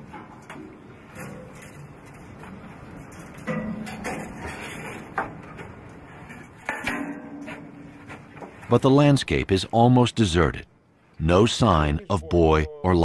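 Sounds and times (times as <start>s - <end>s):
metal ladder clanks and creaks: 0.0s - 8.7s.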